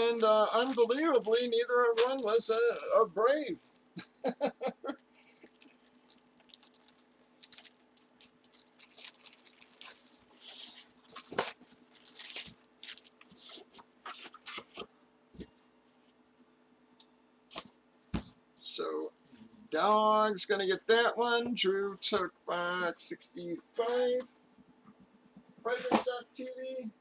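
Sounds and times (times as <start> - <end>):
plastic packaging crinkling: 0.0 - 3.0, 5.3 - 14.9
faint low hum: 0.0 - 27.0.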